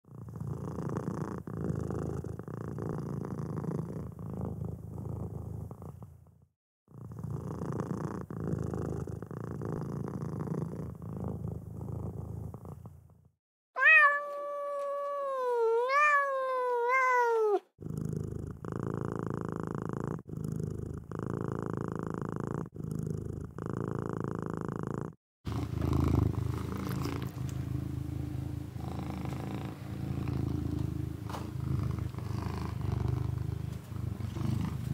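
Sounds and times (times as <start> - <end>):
cat purring: 0.1 - 34.9
cat meowing: 13.8 - 17.7.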